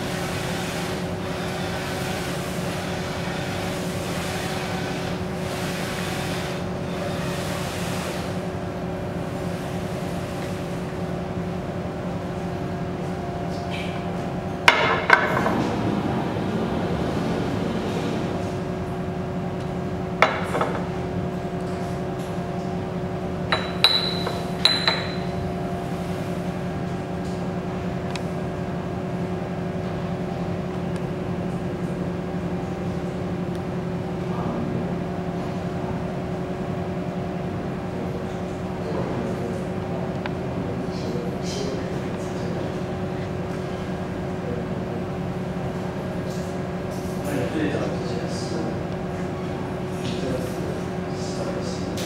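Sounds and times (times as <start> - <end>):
print carriage sweeping: 0.0 - 11.0
printer fans and motors humming: 0.0 - 52.0
bottles knocking and clinking: 23.5 - 25.3.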